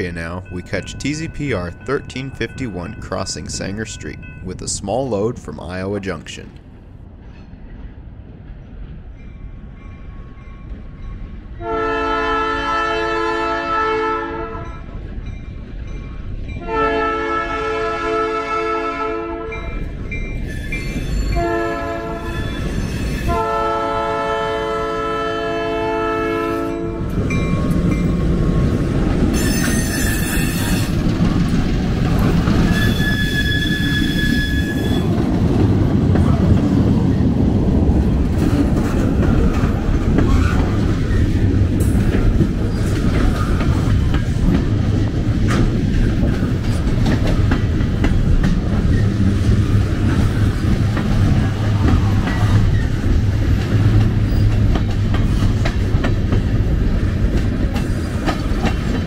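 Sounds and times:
train rumbling past: 0:00.0 - 0:59.0
locomotive horn blasts: 0:11.6 - 0:14.8, 0:16.6 - 0:19.7, 0:21.4 - 0:22.5, 0:23.3 - 0:27.1
wheel squeal: 0:20.4 - 0:21.4, 0:22.2 - 0:23.3, 0:29.3 - 0:31.0, 0:32.6 - 0:35.1
train wheels clickety-clack: 0:26.6 - 0:59.0.

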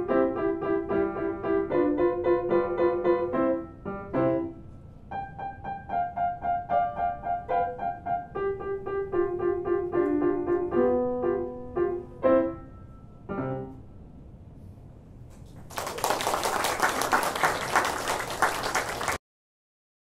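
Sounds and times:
grand piano playing: 0:00.0 - 0:14.0
audience applause: 0:15.6 - 0:19.2.

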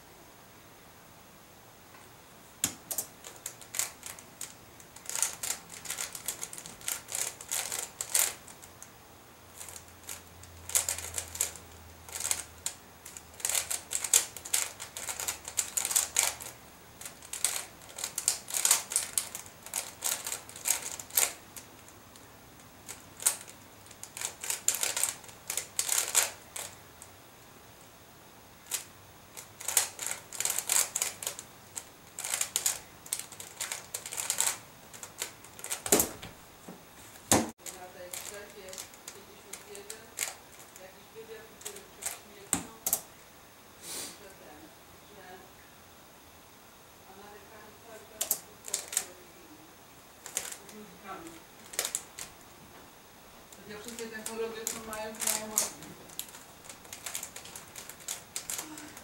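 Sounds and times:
plastic puzzle clicking: 0:02.6 - 0:08.8, 0:09.6 - 0:22.2, 0:22.8 - 0:26.8, 0:28.7 - 0:36.2, 0:37.6 - 0:40.8, 0:48.2 - 0:49.2, 0:50.2 - 0:50.8, 0:51.6 - 0:52.3, 0:53.5 - 0:59.0.

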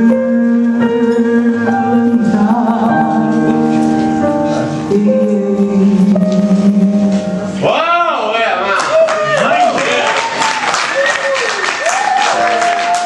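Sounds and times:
woman singing long held notes: 0:00.0 - 0:07.6
grand piano accompaniment: 0:00.0 - 0:08.6, 0:09.7 - 0:13.0.

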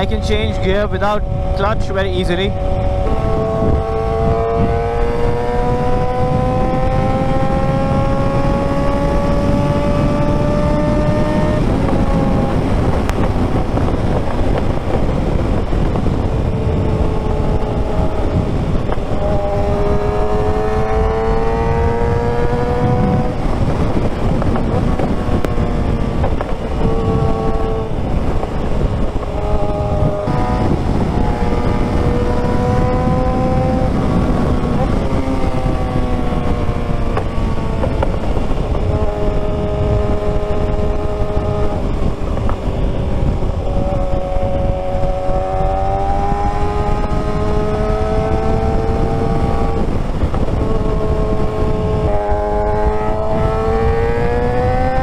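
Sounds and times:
motorcycle engine accelerating: 0:00.0 - 0:55.0
wind rush: 0:00.0 - 0:55.0.

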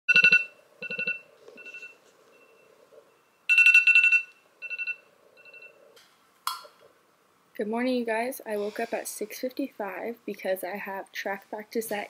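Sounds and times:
phone alarm beeping: 0:00.1 - 0:05.8.

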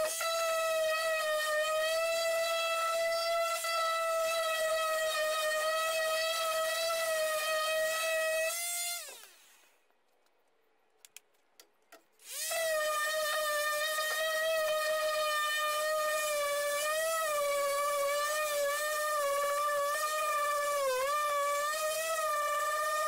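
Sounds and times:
orbital sander whining: 0:12.2 - 0:23.0.

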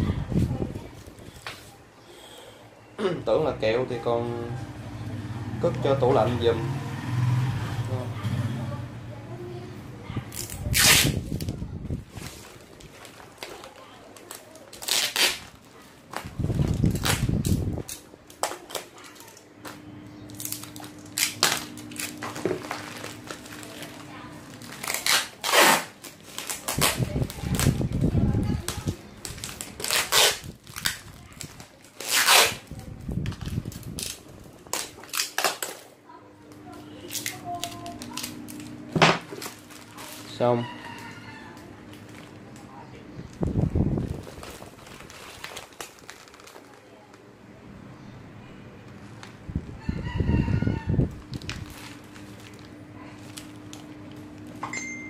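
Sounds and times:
handling noises: 0:10.1 - 0:47.3
packaging crinkling: 0:10.3 - 0:35.9, 0:36.5 - 0:47.3, 0:51.1 - 0:54.6
rooster crowing: 0:40.4 - 0:41.8, 0:49.8 - 0:51.1.

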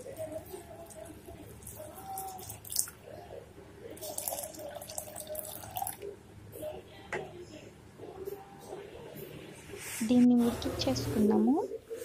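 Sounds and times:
water pouring into a pot: 0:00.4 - 0:03.1, 0:03.9 - 0:06.0.

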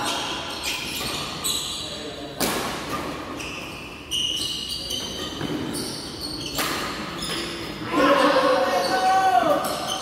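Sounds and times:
sneakers squeaking on floor: 0:00.0 - 0:10.0.

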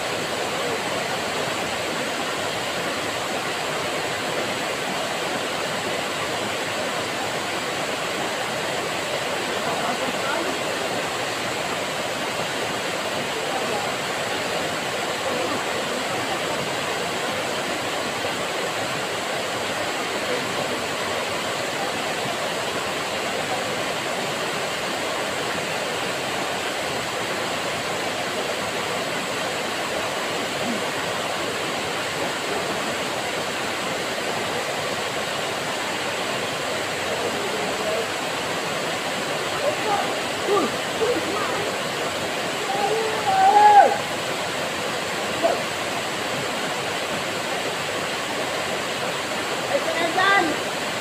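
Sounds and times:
waterfall rushing into pool: 0:00.0 - 0:51.0.

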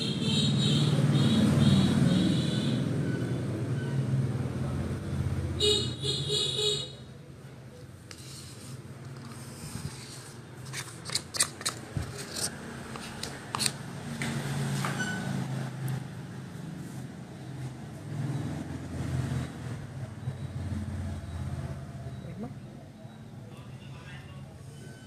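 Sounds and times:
road traffic rumble: 0:00.0 - 0:25.0
spatula scraping plastic bowl: 0:08.1 - 0:13.8.

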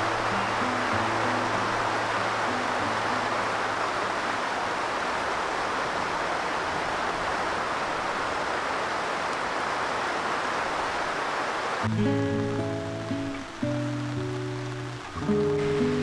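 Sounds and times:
heavy rain hissing: 0:00.0 - 0:16.0
soft instrumental music: 0:11.9 - 0:16.0.

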